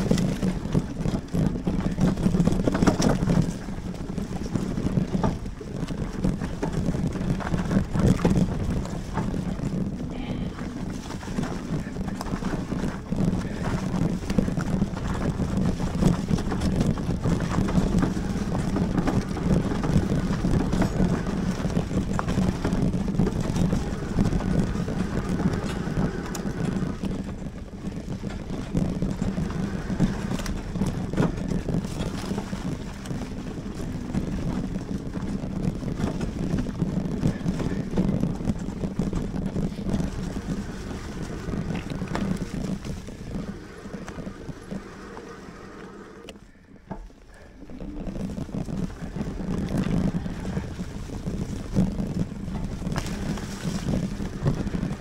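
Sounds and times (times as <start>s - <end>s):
bike rattles and knocks: 0.0s - 55.0s
electric bike rumble: 0.0s - 55.0s
wind buffeting microphone: 0.0s - 55.0s.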